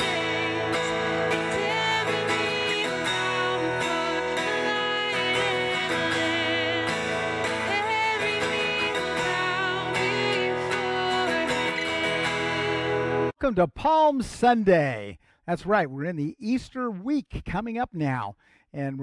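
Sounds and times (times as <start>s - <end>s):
acoustic guitar strumming: 0.0s - 13.3s
woman singing: 0.0s - 13.3s.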